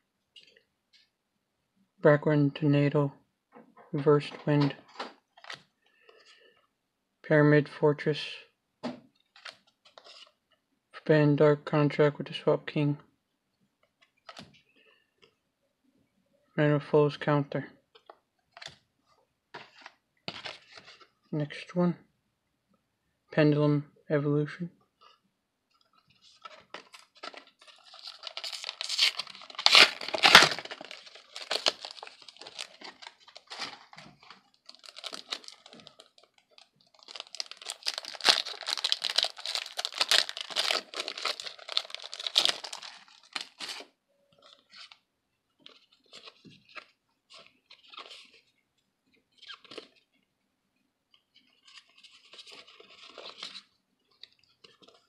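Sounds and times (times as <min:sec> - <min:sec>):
cards rustling: 0:25.7 - 0:45.0, 0:51.4 - 0:55.0
wrapper tearing and crinkling: 0:27.2 - 0:43.9.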